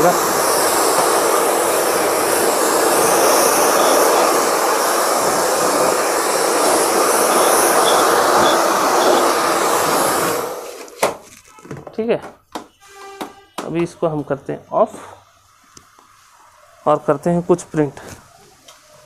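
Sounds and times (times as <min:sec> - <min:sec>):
hair dryer blowing: 0:00.0 - 0:11.0.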